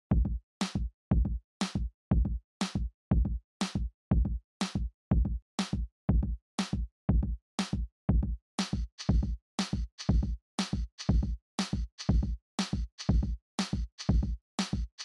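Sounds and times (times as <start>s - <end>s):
electronic music drum machine beat: 8.1s - 15.0s.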